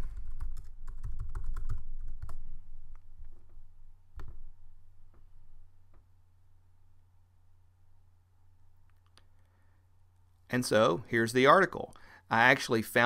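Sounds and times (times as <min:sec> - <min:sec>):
computer keyboard typing: 0:00.0 - 0:02.4.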